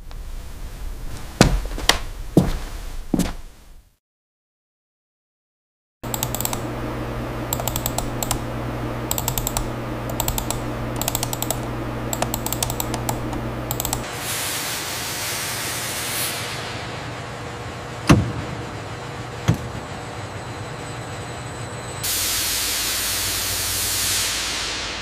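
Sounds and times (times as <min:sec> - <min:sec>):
computer keyboard typing: 0:06.0 - 0:06.7, 0:07.5 - 0:14.1
steady low hum: 0:06.0 - 0:14.3.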